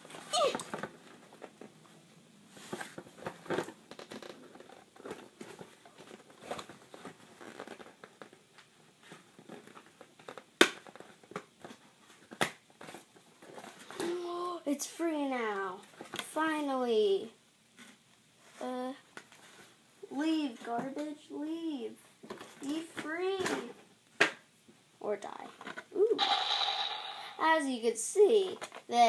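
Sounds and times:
packaging rustling and crinkling: 2.6s - 13.9s.

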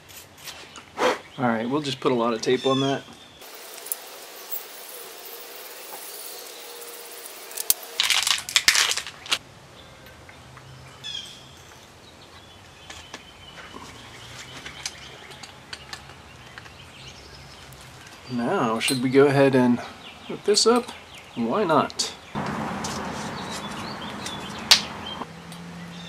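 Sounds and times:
tape crinkling and crackling: 3.4s - 9.4s.

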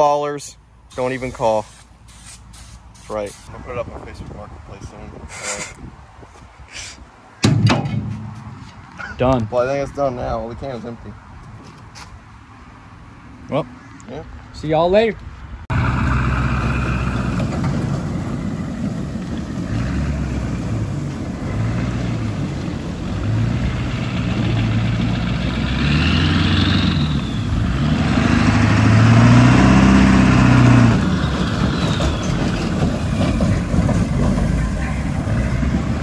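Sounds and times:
diesel truck engine revving: 15.7s - 36.0s.

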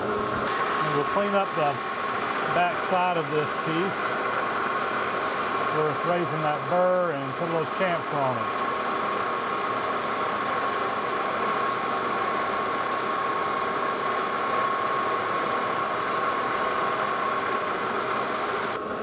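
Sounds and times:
metal lathe hiss: 0.0s - 18.8s
thin high whine: 0.0s - 18.8s.

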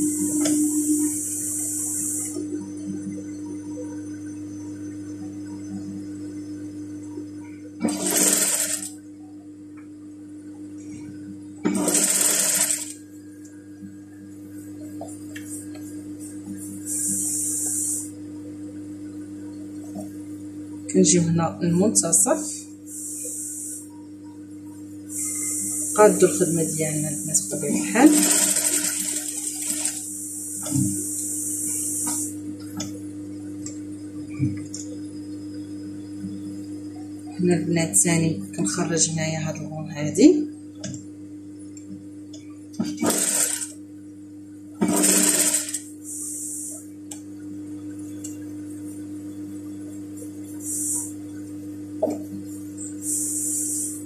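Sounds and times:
steady low hum: 0.0s - 54.0s
sewing machine stitching fabric: 7.8s - 8.9s, 11.6s - 13.0s, 28.0s - 30.0s, 42.8s - 43.8s, 44.8s - 45.8s.

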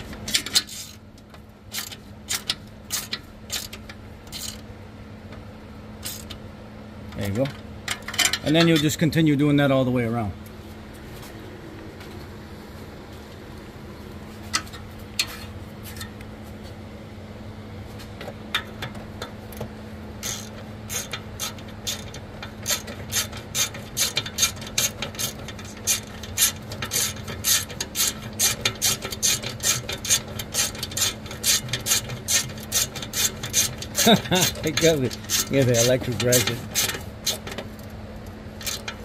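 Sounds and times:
hand ratchet clicking: 1.7s - 4.6s, 20.2s - 37.6s, 38.6s - 39.0s.

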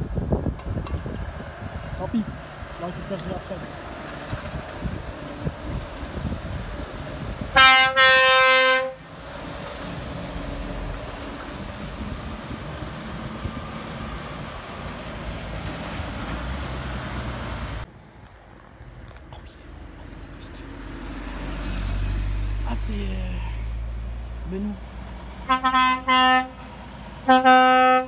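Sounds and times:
lorry engine and tyre noise: 0.0s - 28.0s
truck air horn blasts: 7.5s - 9.0s, 25.4s - 28.0s.

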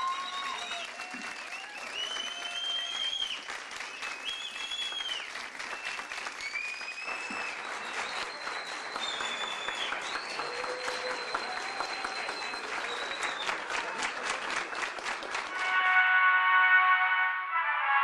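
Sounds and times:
audience applauding: 0.0s - 16.5s.

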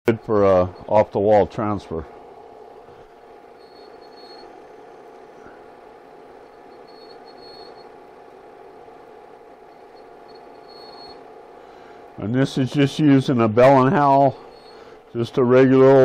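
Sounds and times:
faint high whine: 0.1s - 16.0s
film projector whirring: 0.1s - 16.0s.

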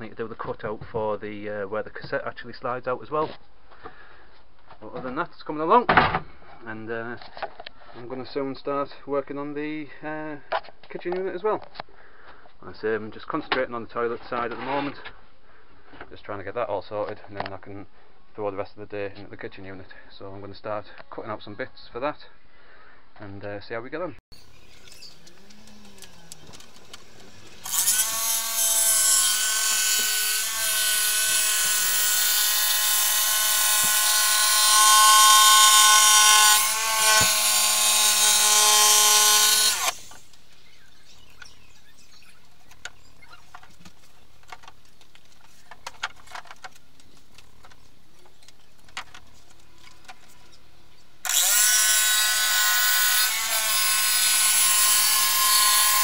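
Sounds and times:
electric saw cutting board: 25.0s - 40.3s, 51.2s - 56.0s.

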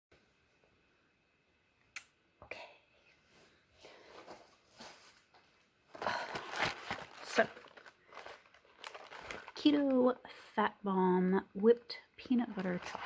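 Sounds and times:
cardboard boxes rustling: 5.9s - 9.6s, 12.5s - 13.0s.

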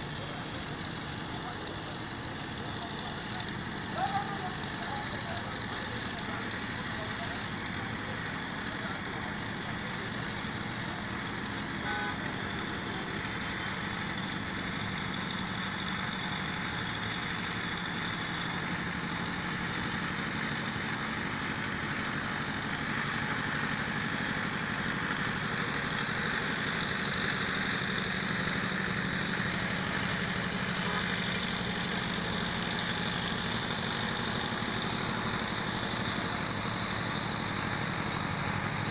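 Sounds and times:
road traffic engines humming: 0.0s - 38.9s.

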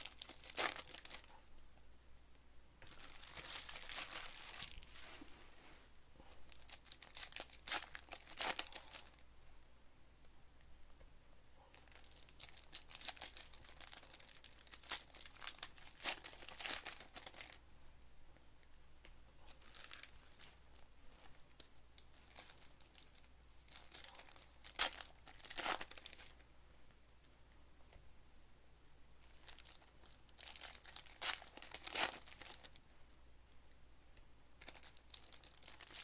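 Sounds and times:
plastic wrappers crinkling and tearing: 0.0s - 1.4s, 2.8s - 5.1s, 6.5s - 9.2s, 11.7s - 17.6s, 19.5s - 26.4s, 29.2s - 32.8s, 34.6s - 36.0s.

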